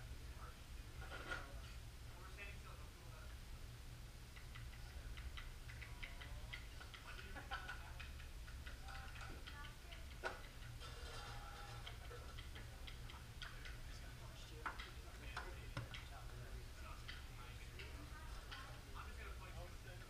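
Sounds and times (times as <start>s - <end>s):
low steady hum: 0.0s - 20.0s
light clicks and taps: 4.4s - 10.8s, 11.8s - 18.7s
faint murmured voices: 4.8s - 20.0s.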